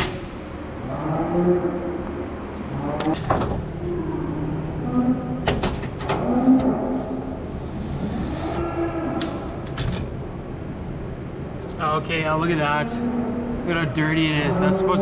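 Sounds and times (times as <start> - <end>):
steady barn hum: 0.0 - 15.0
cows mooing: 0.8 - 7.4, 8.0 - 9.6, 12.6 - 15.0.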